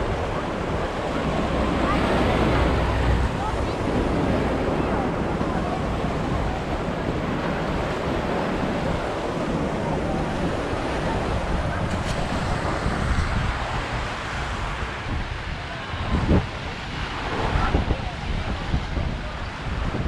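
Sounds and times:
waves splashing against rocks: 0.0s - 20.0s
wind buffeting microphone: 0.0s - 20.0s.

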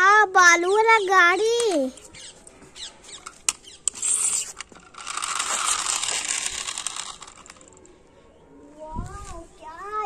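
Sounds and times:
toy truck rolling on concrete: 0.9s - 8.0s
plastic toy clicks: 3.2s - 7.9s.

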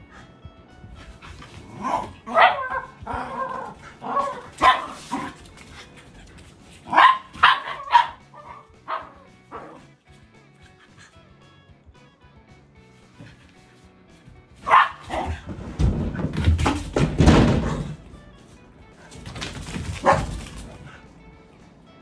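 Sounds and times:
dogs barking: 1.4s - 10.0s, 14.6s - 15.5s, 19.8s - 21.2s.

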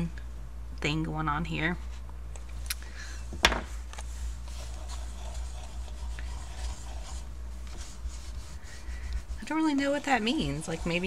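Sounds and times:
pencil scratching on paper: 4.5s - 11.0s.

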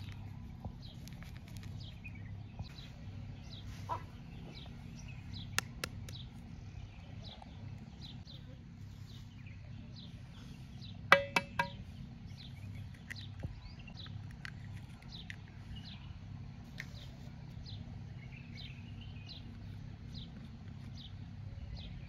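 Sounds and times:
low background hum: 0.0s - 22.0s
small birds chirping: 0.0s - 22.0s
egg tapped on metal bowl: 11.1s - 11.8s.

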